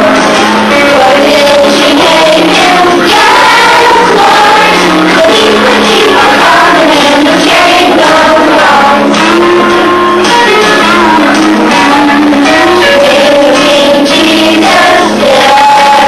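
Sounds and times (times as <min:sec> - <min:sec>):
children singing together: 0:00.0 - 0:16.0
musical accompaniment: 0:00.0 - 0:16.0.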